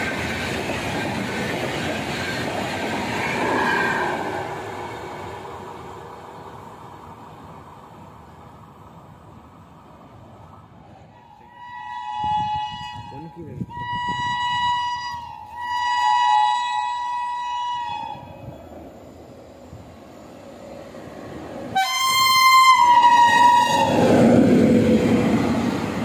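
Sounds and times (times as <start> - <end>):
train rumbling and wheels rattling: 0.0 - 26.0
train horn blast: 11.2 - 18.6, 21.7 - 24.2.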